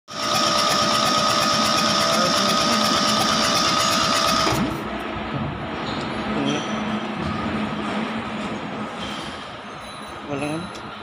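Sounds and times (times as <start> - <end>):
diesel engine cranking by starter: 0.1 - 5.0.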